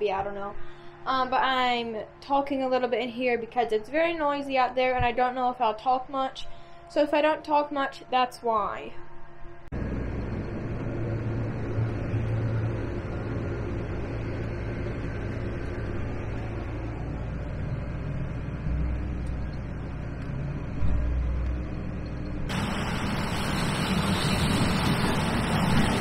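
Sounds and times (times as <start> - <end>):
muffled combine engine drone: 9.2 - 26.0
combine harvester working outside: 9.7 - 26.0.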